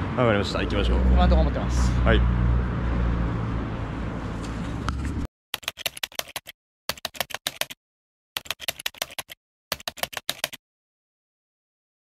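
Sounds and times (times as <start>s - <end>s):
street traffic noise: 0.0s - 5.3s
rapid keyboard clicks: 5.6s - 7.8s, 8.4s - 10.6s.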